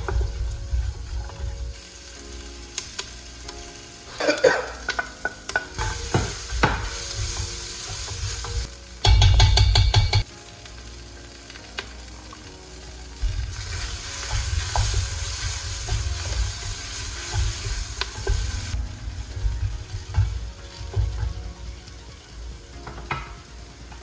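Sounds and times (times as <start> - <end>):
wooden spoon stirring and scraping: 0.0 - 1.8, 13.2 - 21.6
onions sizzling in oil: 0.0 - 24.0
spoon knocking against pot: 9.0 - 10.2.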